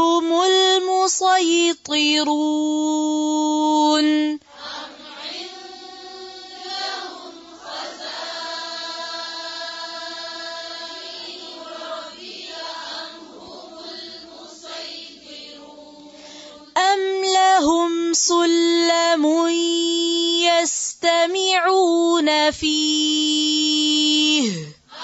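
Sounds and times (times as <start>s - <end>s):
group chanting in unison: 4.4s - 16.8s.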